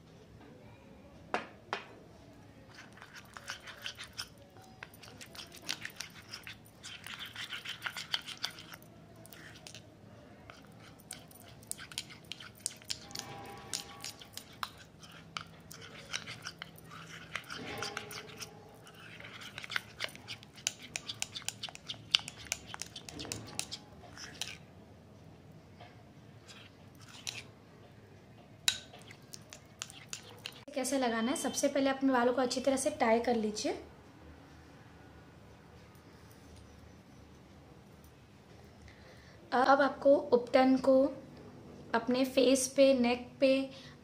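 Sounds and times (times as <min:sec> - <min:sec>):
spoon stirring paste in glass bowl: 0:02.7 - 0:24.7, 0:26.4 - 0:27.6, 0:28.6 - 0:31.7.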